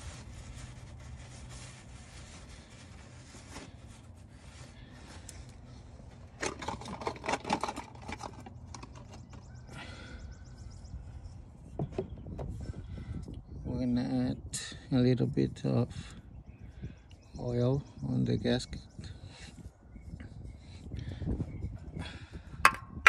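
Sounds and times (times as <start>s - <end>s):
cloth rag rubbing: 0.0s - 4.7s.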